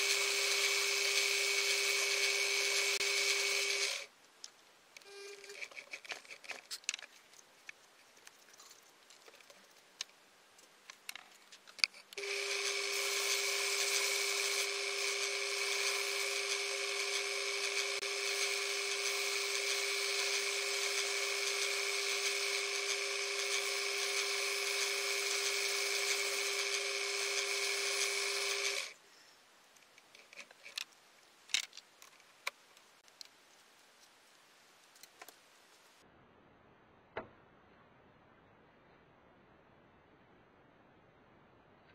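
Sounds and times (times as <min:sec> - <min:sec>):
metal lathe whining: 0:00.0 - 0:04.1, 0:12.2 - 0:29.0.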